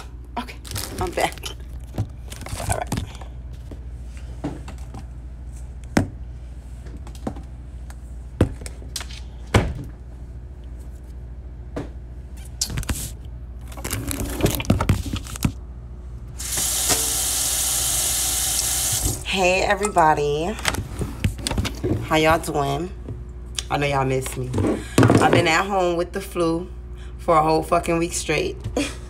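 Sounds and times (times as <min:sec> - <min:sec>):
kitchen faucet running: 0:16.4 - 0:19.3.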